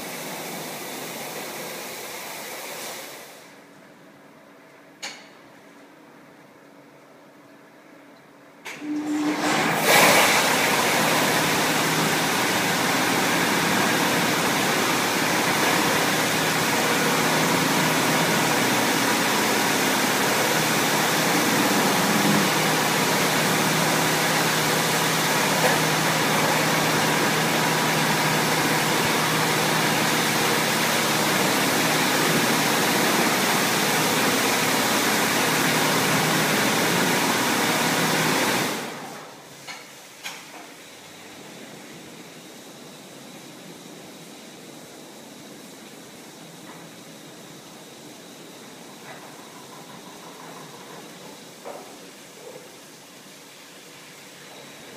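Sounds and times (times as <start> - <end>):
high-pressure water spray hissing: 0.0 - 3.5.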